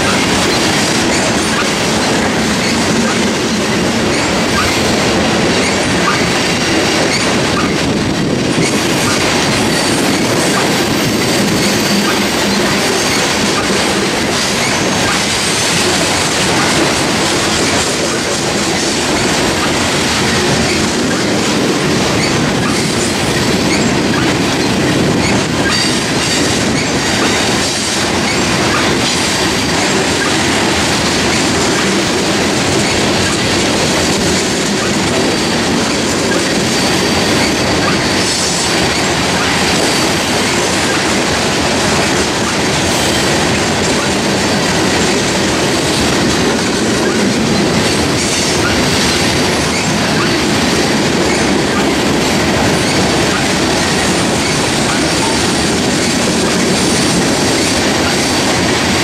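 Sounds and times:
steel train wheels on rail: 0.0s - 59.0s
train wheels clickety-clack: 0.0s - 59.0s
faint high wheel squeal: 9.8s - 13.3s.

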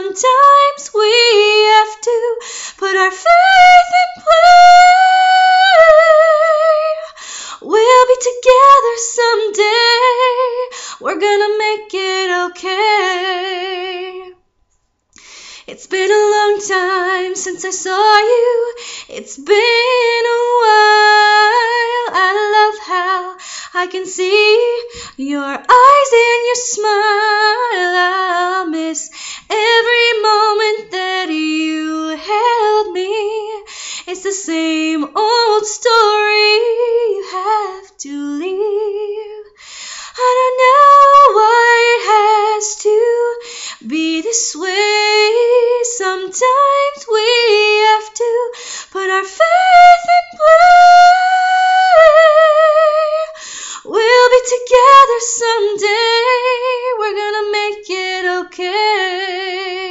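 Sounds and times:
woman singing a cappella: 0.0s - 14.5s, 15.6s - 59.9s.

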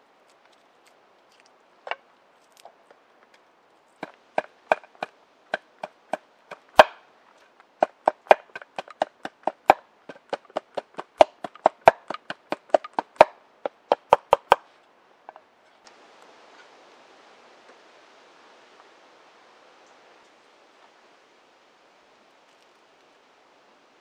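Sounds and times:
knife chopping on a plate: 4.3s - 7.0s, 7.8s - 14.6s.

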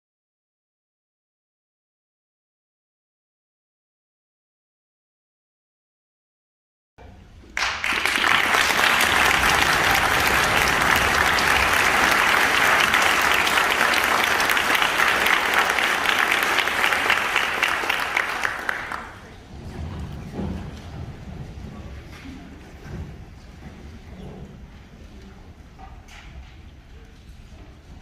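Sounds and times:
audience applauding: 7.6s - 19.3s.

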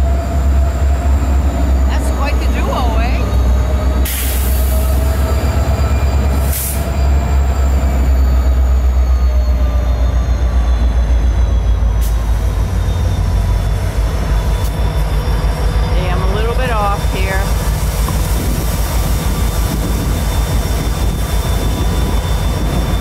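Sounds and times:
locomotive engine rumble: 0.0s - 23.0s
wheel squeal: 5.6s - 16.5s, 19.2s - 23.0s.

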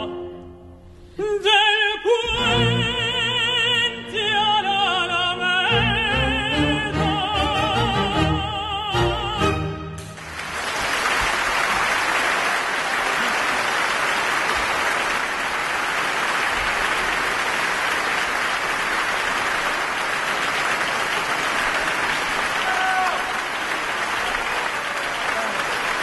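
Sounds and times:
audience applauding: 10.0s - 26.0s.

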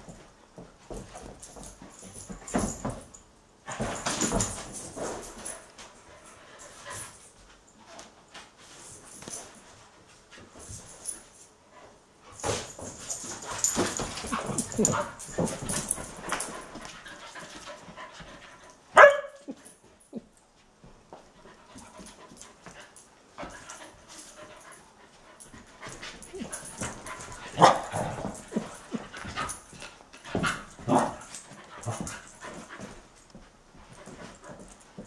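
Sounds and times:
dogs scuffling: 0.0s - 35.0s
dogs panting: 13.0s - 18.8s, 21.2s - 35.0s
dogs barking and yipping: 19.0s - 19.6s, 26.3s - 27.9s.

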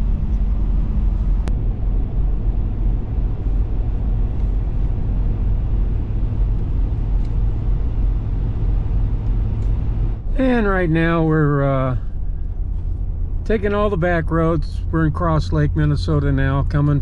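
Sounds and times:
truck engine and road rumble: 0.0s - 17.0s.

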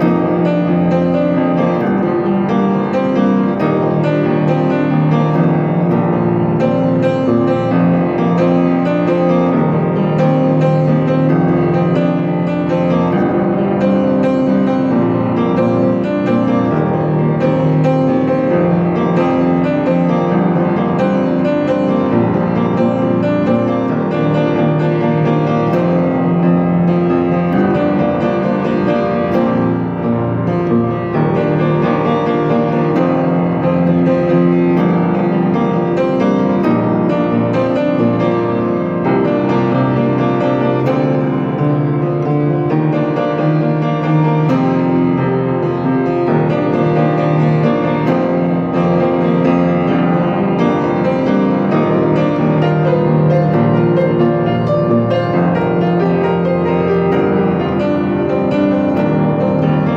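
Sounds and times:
piano music: 0.0s - 59.9s.

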